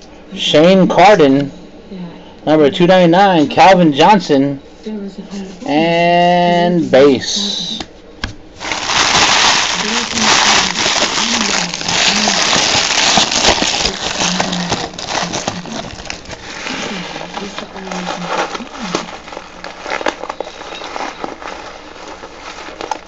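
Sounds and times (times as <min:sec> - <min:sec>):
plastic wrapping crinkling: 0:08.6 - 0:23.0.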